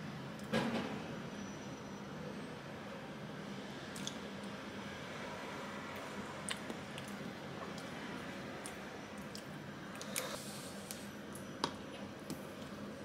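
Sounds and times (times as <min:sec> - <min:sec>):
soft squishing of food: 0:03.9 - 0:13.0.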